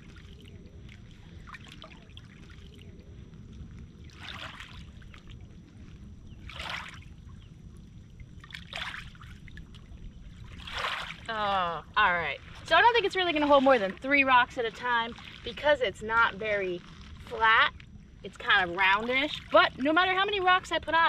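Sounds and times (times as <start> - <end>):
water lapping on pebbles: 0.0 - 7.3, 8.2 - 11.6, 12.2 - 20.8
low rumble: 0.0 - 21.0
splashy swells: 10.5 - 11.3.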